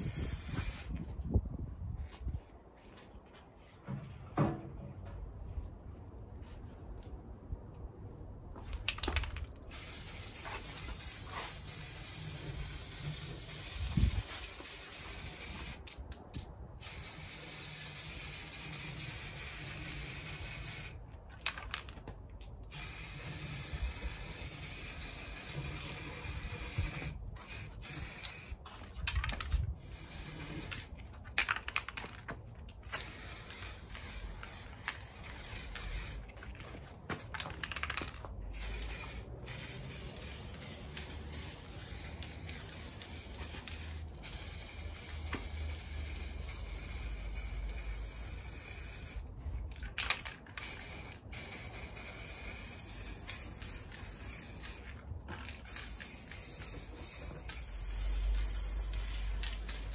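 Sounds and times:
spray can hissing: 0.0s - 1.0s, 9.0s - 15.8s, 16.8s - 21.0s, 22.7s - 32.1s, 32.8s - 36.4s, 37.4s - 49.3s, 50.1s - 59.9s.

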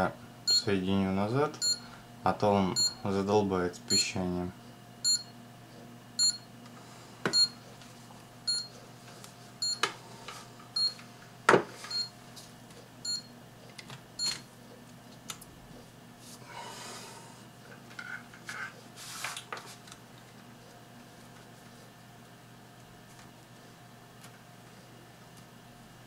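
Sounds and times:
power supply tester beeping: 0.5s - 0.7s, 1.6s - 1.8s, 2.8s - 3.0s, 5.0s - 5.3s, 6.2s - 6.5s, 7.3s - 7.6s, 8.5s - 8.7s, 9.6s - 9.8s, 10.8s - 11.0s, 11.9s - 12.1s, 13.1s - 13.3s, 14.2s - 14.4s.

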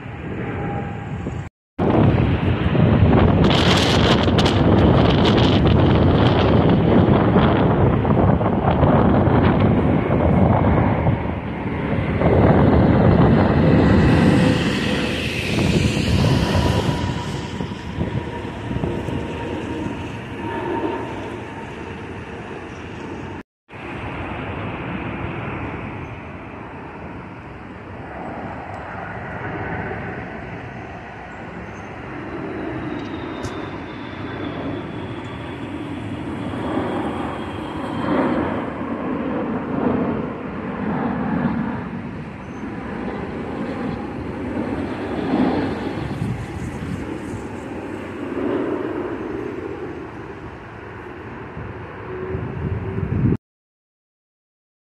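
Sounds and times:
high engine whine: 0.0s - 53.4s
jet engines rumbling overhead: 0.0s - 53.4s.

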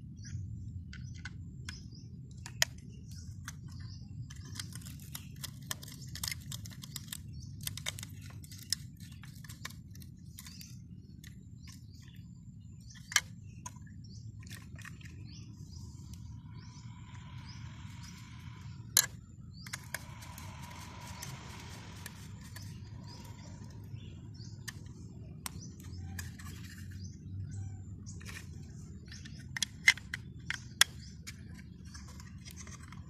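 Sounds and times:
steady low rumble: 0.0s - 33.0s
plastic toy parts clicking: 0.9s - 12.2s, 24.6s - 27.0s, 28.2s - 33.0s.

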